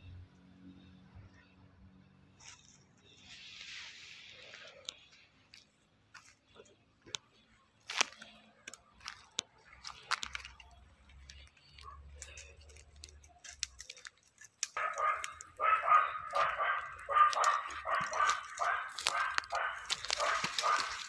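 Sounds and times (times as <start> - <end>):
animal harsh calls: 14.8 - 21.0.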